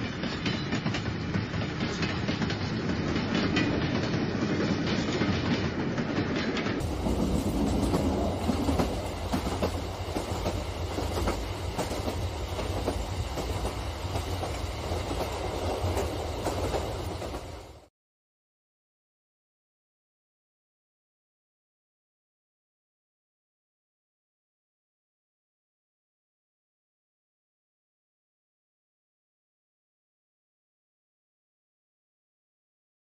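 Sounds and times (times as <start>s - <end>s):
model train rumble: 0.1s - 17.9s.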